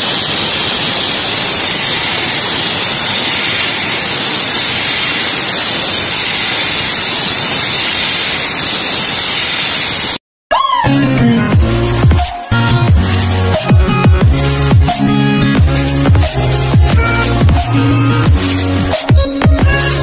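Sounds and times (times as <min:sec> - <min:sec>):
spray-welding gun hissing: 0:00.0 - 0:10.2.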